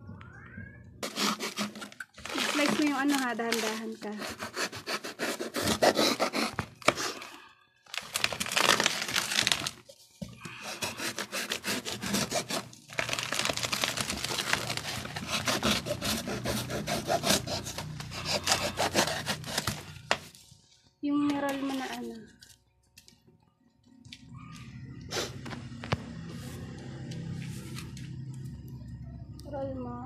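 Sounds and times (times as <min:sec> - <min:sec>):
scissors cutting cardboard: 0:01.0 - 0:07.2, 0:10.5 - 0:20.0
cardboard tearing and scraping: 0:01.0 - 0:07.3, 0:07.9 - 0:09.9, 0:10.5 - 0:20.4.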